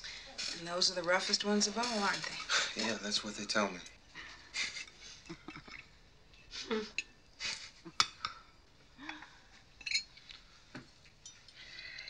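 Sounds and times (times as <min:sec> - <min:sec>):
cutlery clinking on plates: 0:09.8 - 0:10.2.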